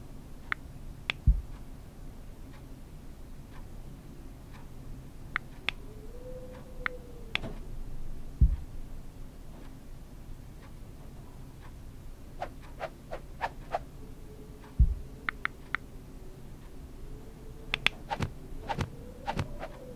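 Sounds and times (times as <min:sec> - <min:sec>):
soft ticking: 0:00.2 - 0:19.9
low thuds: 0:01.2 - 0:01.6, 0:08.3 - 0:09.0, 0:14.8 - 0:15.2
sharp clicks: 0:06.6 - 0:07.7, 0:14.6 - 0:15.9, 0:17.7 - 0:19.9.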